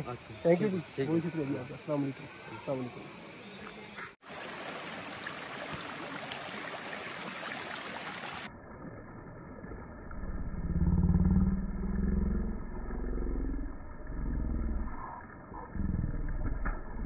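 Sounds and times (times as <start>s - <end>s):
stream water rushing: 4.2s - 8.5s
low hum: 8.5s - 17.0s.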